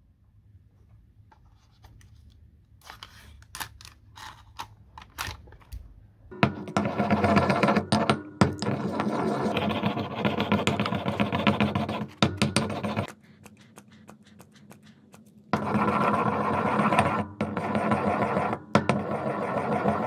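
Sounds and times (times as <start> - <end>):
stone pestle scraping in mortar: 6.5 - 20.0.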